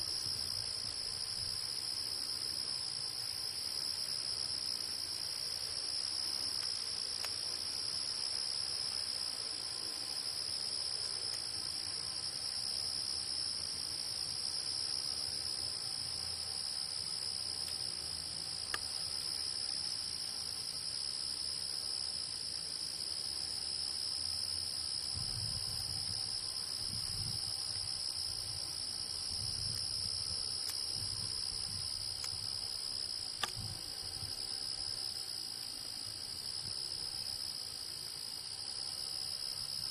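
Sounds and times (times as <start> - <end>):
insects trilling: 0.0 - 39.9
small clicks: 33.4 - 33.6.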